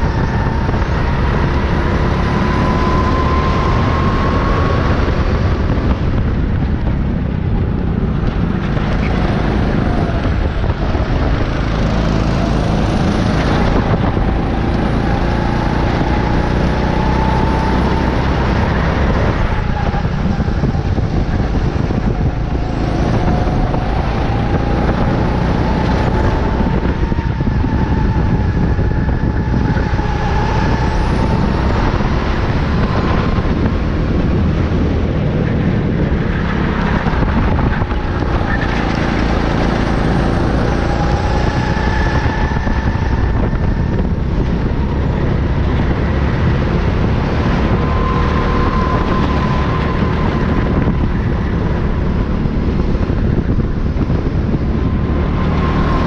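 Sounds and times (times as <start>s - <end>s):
kart motor running hard: 0.0s - 56.0s.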